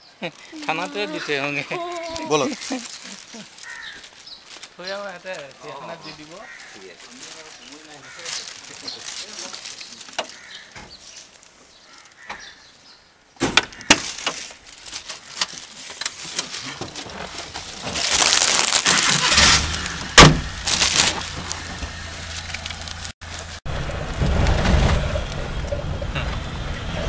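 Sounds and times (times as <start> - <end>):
car door shutting bang: 19.3 - 20.6.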